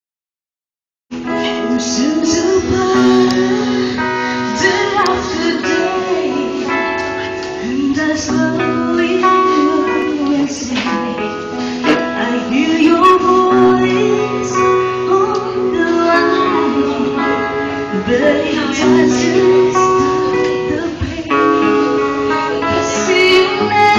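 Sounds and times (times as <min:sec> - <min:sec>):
band playing sustained chords: 0:01.2 - 0:23.9
person singing live: 0:01.2 - 0:23.9.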